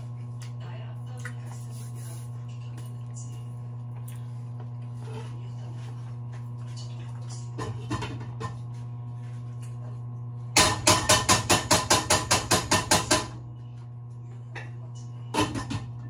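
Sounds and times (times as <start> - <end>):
steady hum: 0.0 - 16.0
rapid sharp kitchen knocks: 10.6 - 13.4.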